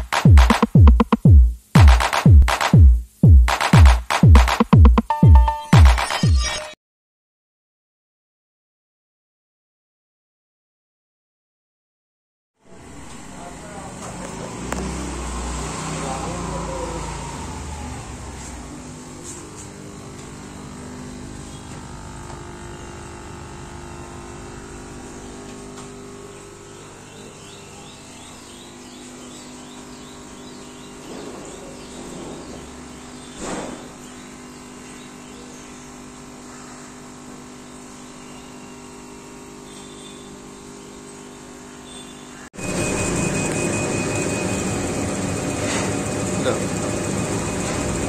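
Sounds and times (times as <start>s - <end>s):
laser cutter humming: 12.7s - 48.0s.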